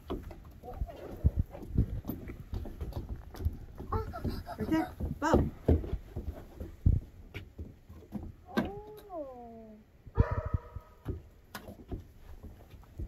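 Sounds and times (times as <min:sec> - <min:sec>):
rubber boots on wooden boards: 0:00.0 - 0:08.5, 0:10.3 - 0:13.0.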